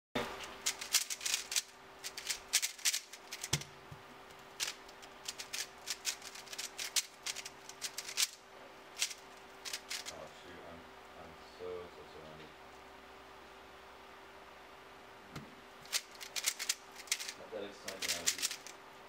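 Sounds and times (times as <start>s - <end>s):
puzzle cube clicking: 0.6s - 3.7s, 4.6s - 8.4s, 9.0s - 10.1s, 15.9s - 18.7s.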